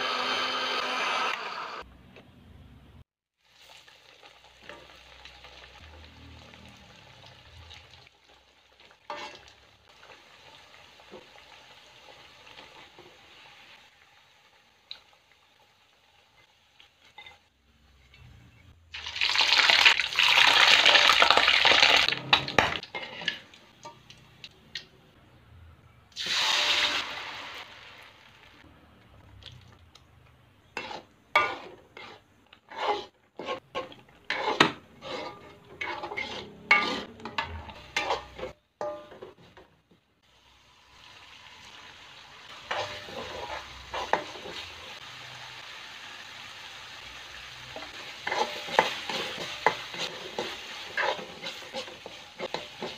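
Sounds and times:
chili paste sizzling in hot oil: 3.3 - 24.5, 26.1 - 39.6, 40.2 - 52.9
metal spoon scraping a wok: 9.1 - 9.5, 22.2 - 24.0, 30.6 - 39.6, 42.5 - 45.0, 47.7 - 52.9.

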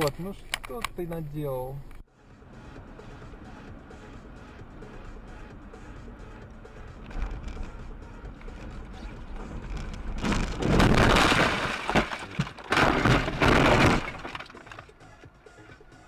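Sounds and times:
vehicle crash crunching and scraping: 8.4 - 16.0.

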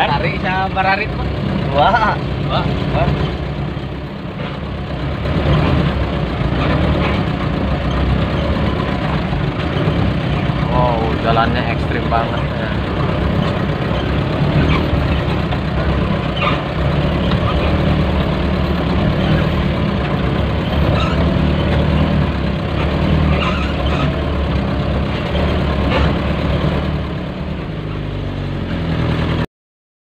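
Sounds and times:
truck rattling on dirt track: 0.0 - 29.4
diesel truck engine running: 0.0 - 29.5.

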